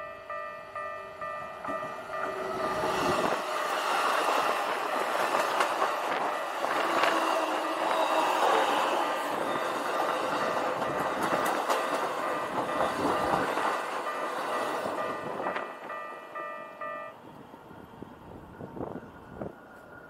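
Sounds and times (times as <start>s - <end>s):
train wheels on rails: 0.0s - 20.0s.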